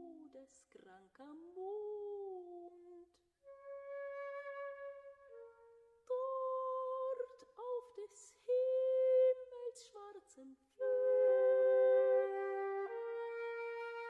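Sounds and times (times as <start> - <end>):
solo flute: 3.4 - 7.3, 10.8 - 14.0
soprano half-singing: 6.1 - 14.0.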